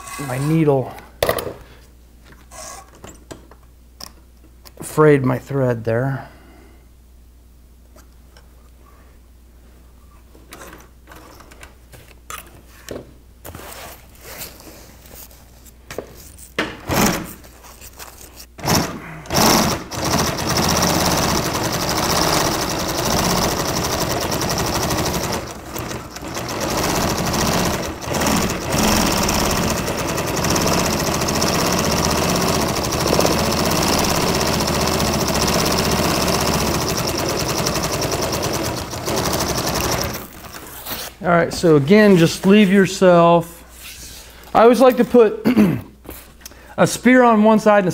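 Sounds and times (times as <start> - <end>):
industrial sewing machine stitching: 18.6 - 40.6.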